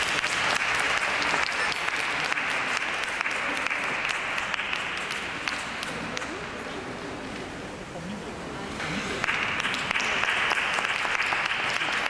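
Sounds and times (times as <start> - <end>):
audience applauding: 0.0 - 6.4, 9.2 - 12.0.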